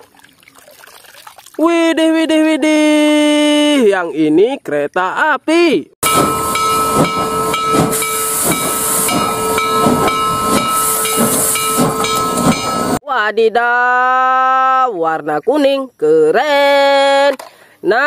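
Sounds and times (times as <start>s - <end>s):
locomotive exhaust chuffing: 6.0s - 13.0s
steam hissing: 6.0s - 13.0s
steam locomotive whistle: 6.0s - 13.0s.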